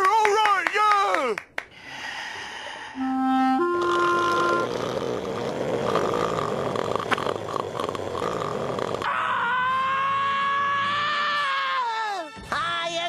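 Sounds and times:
raspy cartoon vocal sound: 3.6 - 9.2.

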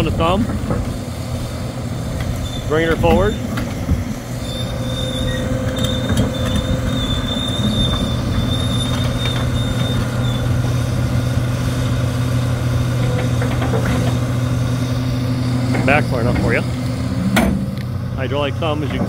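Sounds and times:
excavator engine running: 0.0 - 19.0
thin high squeal: 4.4 - 10.6.

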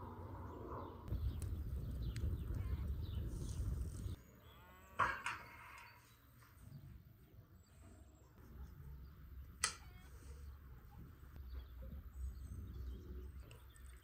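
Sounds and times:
low rumbling noise: 0.0 - 4.2.

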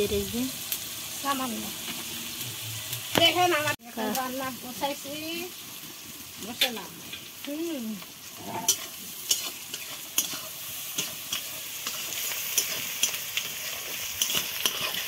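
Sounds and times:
onions sizzling in hot oil: 0.0 - 15.0
metal spatula scraping pan: 8.3 - 15.0.

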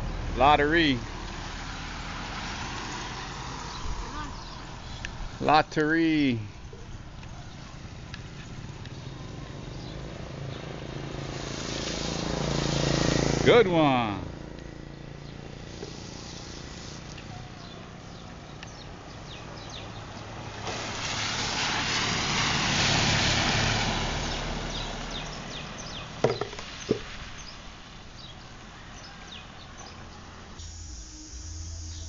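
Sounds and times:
truck driving past on wet road: 0.0 - 5.4, 7.8 - 17.2, 17.8 - 30.6
sharp knocks: 26.2 - 27.1.

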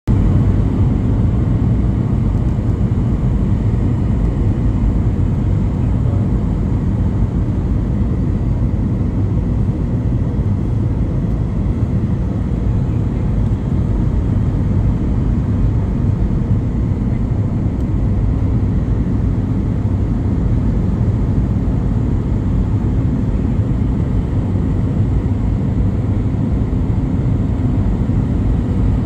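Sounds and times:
airplane cabin engine rumble: 0.1 - 29.0.

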